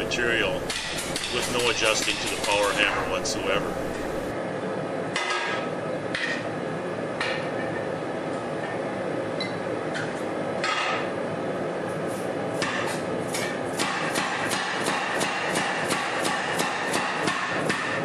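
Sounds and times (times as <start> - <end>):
power hammer striking steel: 0.0 - 4.3, 12.6 - 18.0
steady hiss: 0.0 - 4.3.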